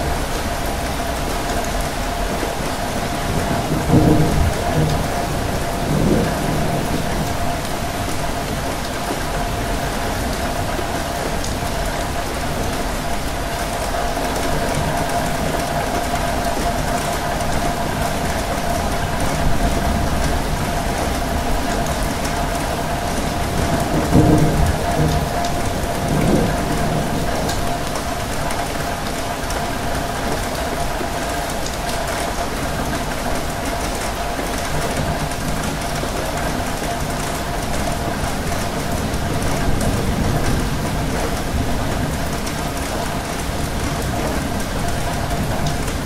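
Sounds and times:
steady rain: 0:00.0 - 0:46.0.

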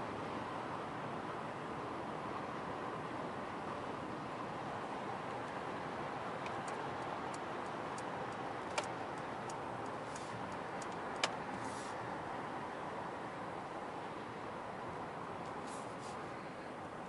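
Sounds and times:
road and tyre noise in car: 0:00.0 - 0:17.0
sharp clicks: 0:08.7 - 0:09.6.

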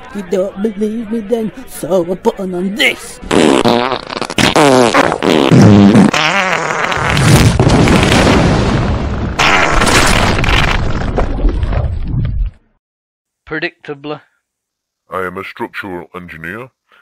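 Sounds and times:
comic fart: 0:03.3 - 0:07.6, 0:09.4 - 0:09.9.

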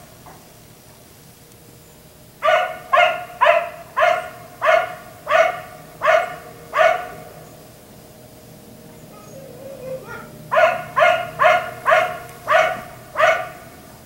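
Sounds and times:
dog barking: 0:02.4 - 0:07.2, 0:09.2 - 0:13.7.

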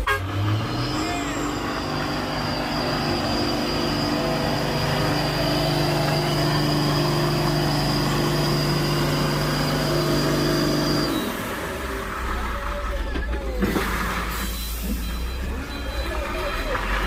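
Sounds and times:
truck diesel engine: 0:00.0 - 0:17.0
thin high whine: 0:00.6 - 0:11.3.

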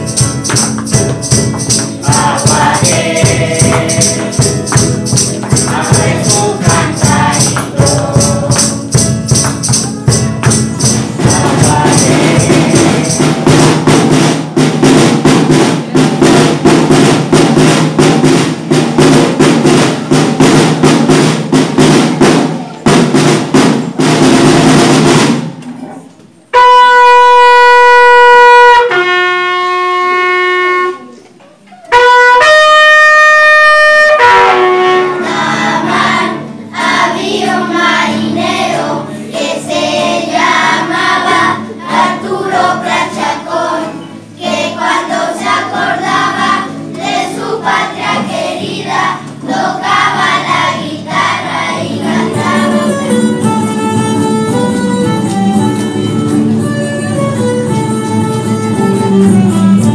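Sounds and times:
children singing: 0:00.0 - 0:14.4, 0:34.2 - 0:54.0
bugle call: 0:26.5 - 0:31.2, 0:31.9 - 0:35.7.

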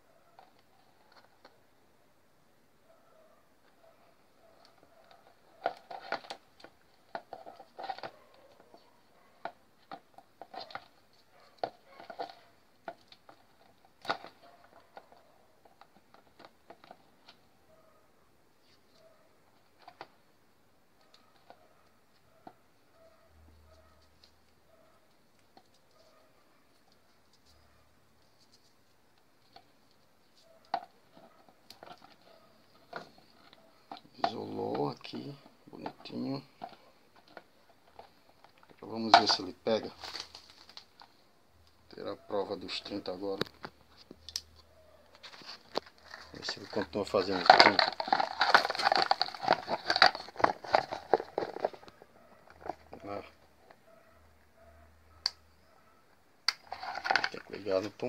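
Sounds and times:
clicks and taps handling wires: 0:28.2 - 0:42.0, 0:42.8 - 0:53.8.

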